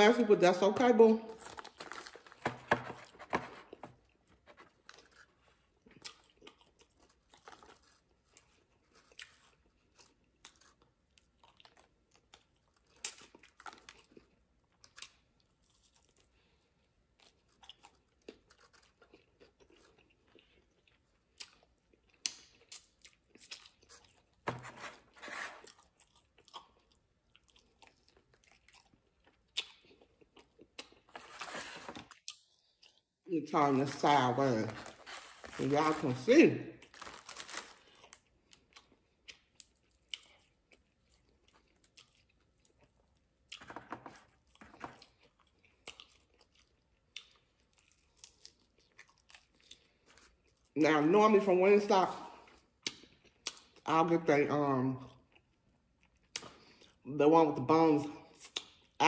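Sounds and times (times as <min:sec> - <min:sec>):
crunchy chewing: 0:01.4 - 0:33.1.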